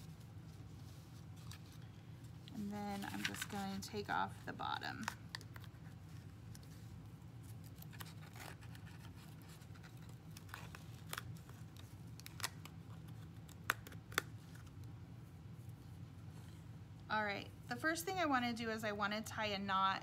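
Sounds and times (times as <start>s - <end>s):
soft rustling of yarn: 0.0s - 5.0s
low steady hum: 0.0s - 20.0s.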